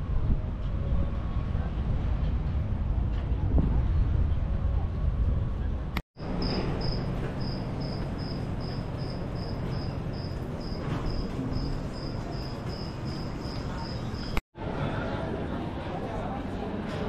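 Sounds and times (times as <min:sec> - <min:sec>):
insect chirping: 0:06.3 - 0:14.4.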